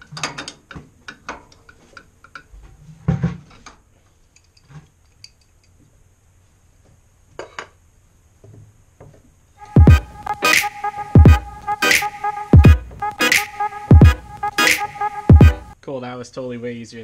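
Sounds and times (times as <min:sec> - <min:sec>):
music: 0:09.6 - 0:15.8.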